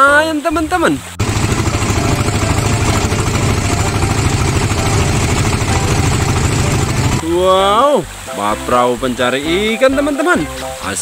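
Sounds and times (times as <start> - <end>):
boat engine throbbing: 1.2 - 7.4.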